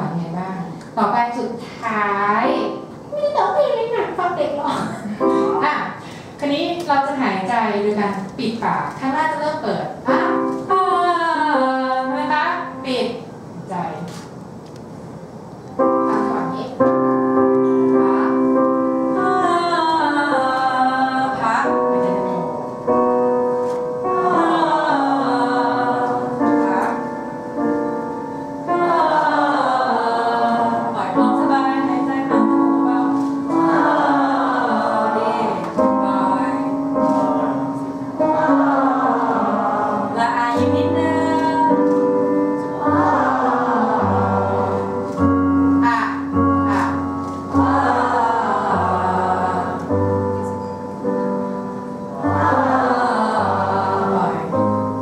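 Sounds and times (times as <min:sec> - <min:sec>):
piano warm-up notes and chords: 0:02.2 - 0:13.7, 0:15.0 - 0:55.0
group of singers holding ah: 0:24.0 - 0:27.0, 0:28.6 - 0:32.4, 0:33.0 - 0:41.9, 0:42.6 - 0:45.2, 0:47.5 - 0:50.5, 0:52.1 - 0:54.8.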